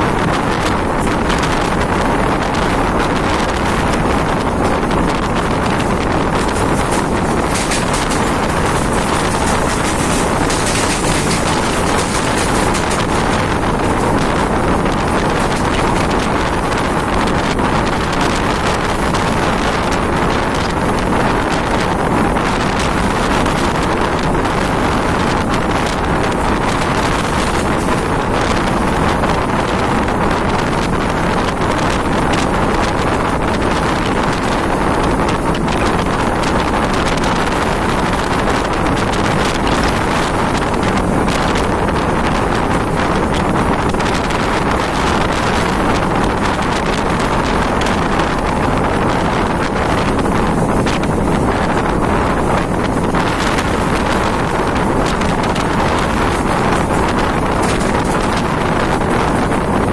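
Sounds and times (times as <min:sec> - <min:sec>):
train wheels rumbling on rails: 0:00.0 - 0:59.9
wind rushing over microphone: 0:00.0 - 0:59.9.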